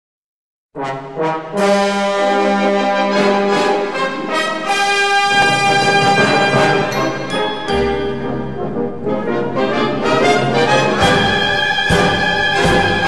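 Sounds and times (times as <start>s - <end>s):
trombones: 0.8s - 13.0s
wind band playing latin music: 0.8s - 13.0s.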